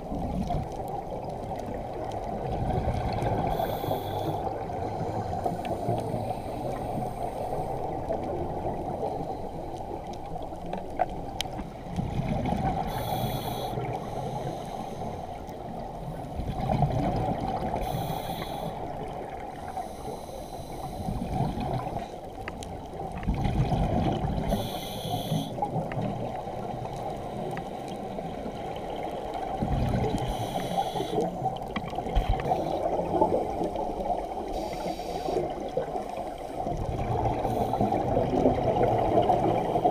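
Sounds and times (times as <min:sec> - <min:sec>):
underwater wash: 0:00.0 - 0:39.9
regulator inhalation hiss: 0:03.5 - 0:07.8, 0:12.9 - 0:15.4, 0:17.8 - 0:18.9, 0:19.6 - 0:21.3, 0:24.4 - 0:25.6, 0:30.2 - 0:31.5, 0:34.5 - 0:35.6
exhaled bubbles: 0:23.1 - 0:27.0, 0:31.2 - 0:39.9.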